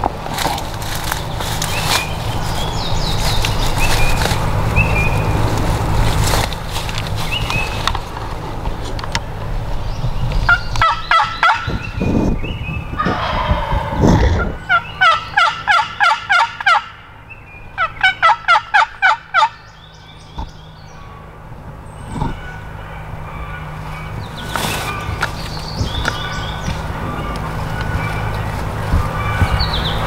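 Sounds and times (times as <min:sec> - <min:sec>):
turkey calling: 0:10.5 - 0:12.2, 0:13.0 - 0:30.0.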